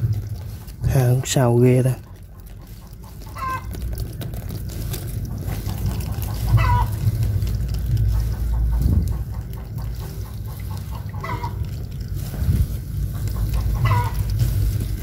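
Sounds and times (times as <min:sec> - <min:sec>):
steady low rumble: 0:00.0 - 0:15.0
chicken clucking: 0:00.4 - 0:03.8, 0:05.4 - 0:12.4, 0:13.1 - 0:15.0.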